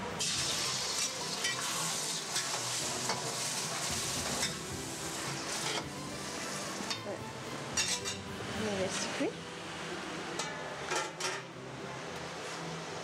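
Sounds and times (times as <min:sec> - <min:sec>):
squid sizzling in wok: 0:00.0 - 0:11.6
metal spoon scraping pan: 0:07.8 - 0:08.3.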